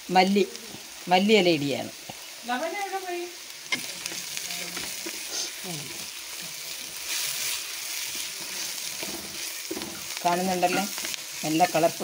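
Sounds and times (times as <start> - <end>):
masala sizzling in a pan: 0.0 - 12.0
wooden spatula scraping a pan: 3.7 - 11.8.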